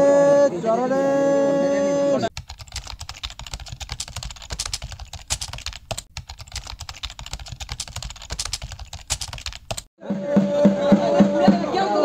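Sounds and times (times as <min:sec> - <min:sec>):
rapid irregular clicking: 0:02.3 - 0:09.9.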